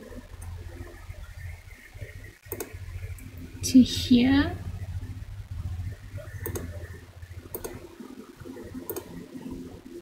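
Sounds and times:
low hum: 0:00.0 - 0:10.0
computer mouse clicking: 0:02.4 - 0:03.3, 0:06.3 - 0:06.8, 0:07.4 - 0:07.9, 0:08.8 - 0:09.7.

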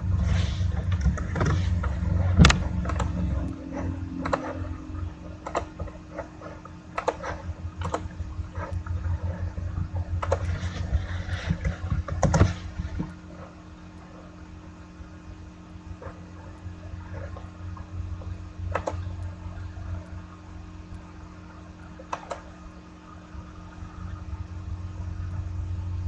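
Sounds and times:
steady low hum: 0:00.0 - 0:26.0
sharp clicks and knocks: 0:00.8 - 0:03.6, 0:04.2 - 0:04.7, 0:05.4 - 0:08.9, 0:10.2 - 0:10.8, 0:11.4 - 0:13.5, 0:18.2 - 0:19.1, 0:22.0 - 0:22.5.

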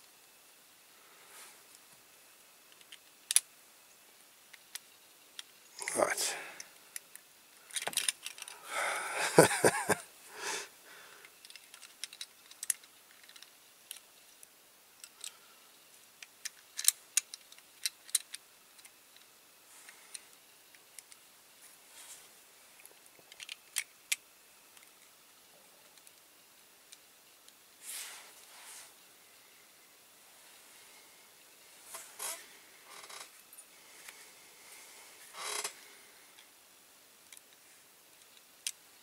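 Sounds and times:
small parts clicking and tapping: 0:02.6 - 0:06.0, 0:06.6 - 0:08.6, 0:11.2 - 0:21.3, 0:22.8 - 0:27.6, 0:37.2 - 0:38.9.

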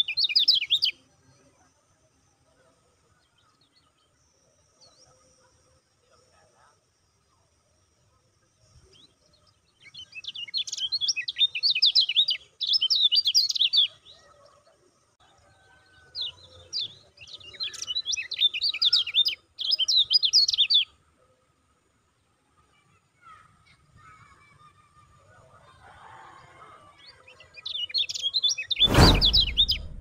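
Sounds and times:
bird chattering song: 0:00.0 - 0:01.0.

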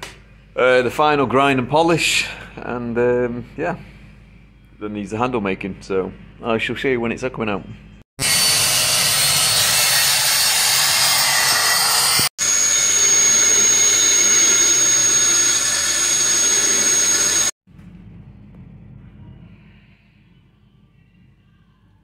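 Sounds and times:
belt grinder whining: 0:08.2 - 0:17.6
rotary tool grinding steel: 0:08.2 - 0:17.6.

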